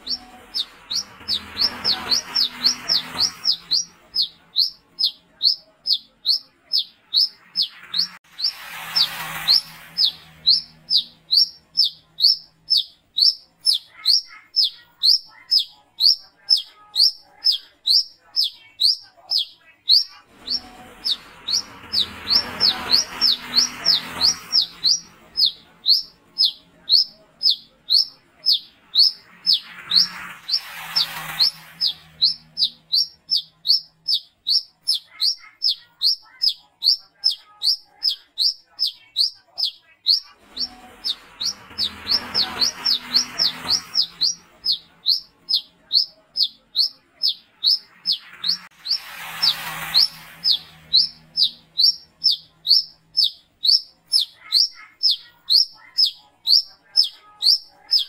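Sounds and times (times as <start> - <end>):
sunbird calling: 0.0 - 58.0
rushing noise: 7.5 - 11.6, 47.6 - 52.1.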